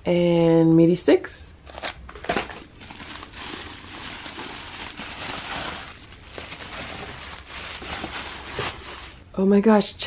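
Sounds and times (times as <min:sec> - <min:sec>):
bubble wrap crinkling: 0:01.7 - 0:09.3.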